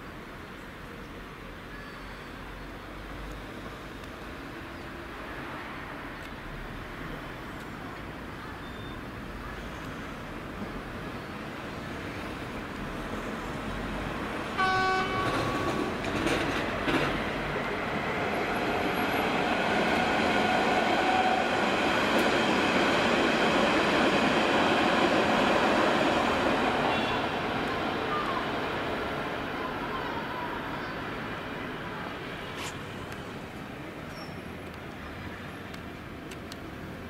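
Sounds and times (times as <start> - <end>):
train rushing rumble: 10.4 - 34.1
train horn toot: 14.6 - 16.0, 26.8 - 27.4.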